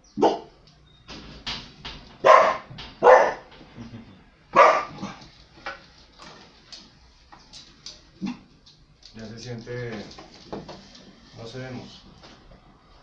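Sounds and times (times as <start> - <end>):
dog barking: 0.2 - 0.6, 2.2 - 3.5, 4.5 - 5.2.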